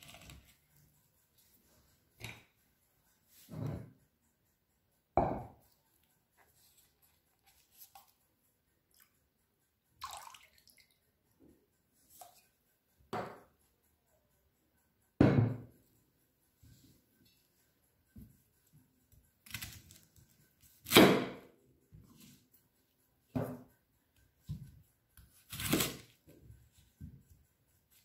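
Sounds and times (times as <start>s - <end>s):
juice pouring and dripping: 10.0s - 11.1s
knocks on wooden cutting board: 15.2s - 15.6s.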